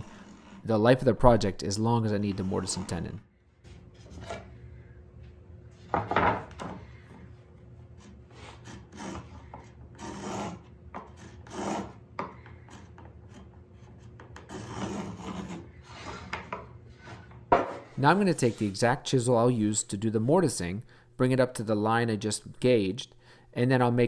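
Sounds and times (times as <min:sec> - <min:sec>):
marking gauge scratching wood: 0:00.0 - 0:03.1, 0:08.0 - 0:12.0, 0:12.6 - 0:16.4.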